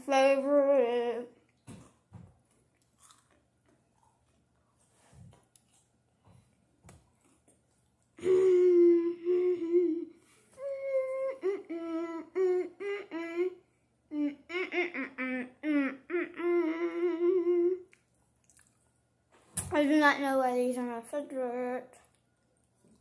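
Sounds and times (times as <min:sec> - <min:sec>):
soft chewing: 0:01.4 - 0:08.2, 0:17.8 - 0:19.1, 0:22.0 - 0:23.0
girl humming with mouth full: 0:08.2 - 0:17.9.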